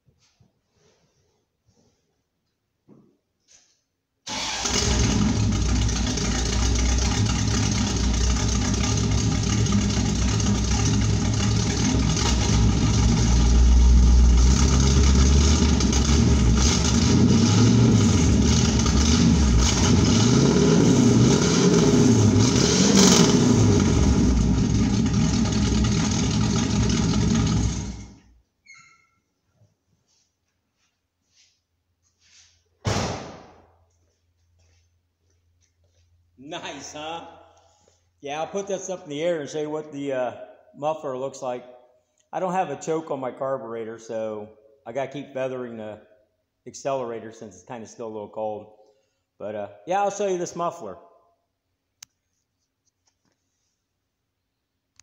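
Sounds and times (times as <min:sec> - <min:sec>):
car engine revving loudly: 0:04.4 - 0:28.1.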